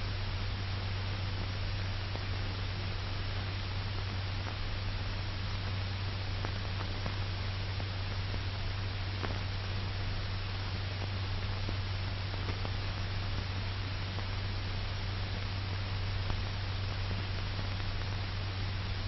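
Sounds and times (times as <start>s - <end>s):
film soundtrack hiss: 0.0s - 19.0s.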